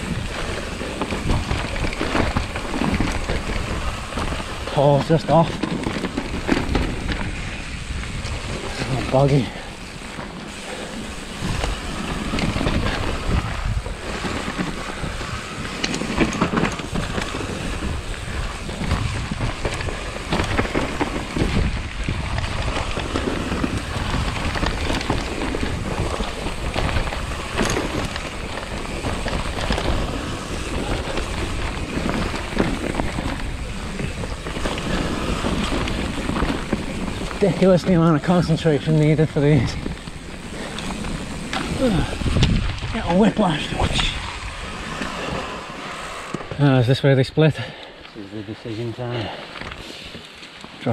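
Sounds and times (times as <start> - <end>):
tyre rumble on dirt: 0.0 - 46.8
wind noise on microphone: 0.0 - 47.0
bike knocking and rattling: 0.0 - 50.9.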